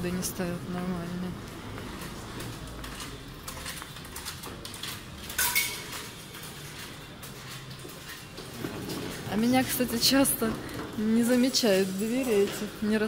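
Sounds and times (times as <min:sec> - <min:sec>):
hard objects clinking together: 0:02.0 - 0:09.7.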